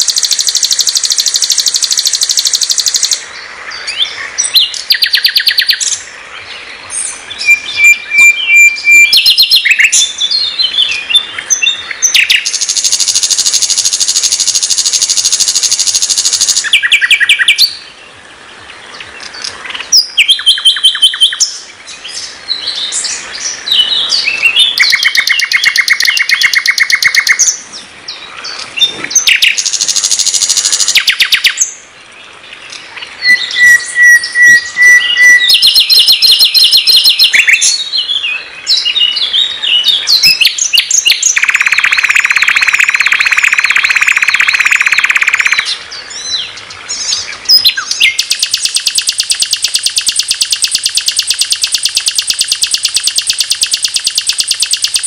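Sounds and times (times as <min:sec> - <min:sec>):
nightingale singing: 0:00.0 - 0:55.0.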